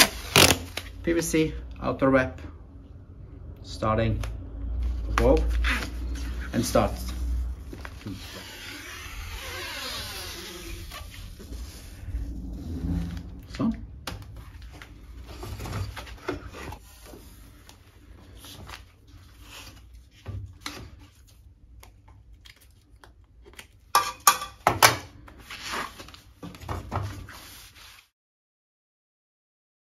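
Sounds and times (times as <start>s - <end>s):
gloved hands rubbing tape: 0.0s - 0.9s, 5.5s - 12.2s.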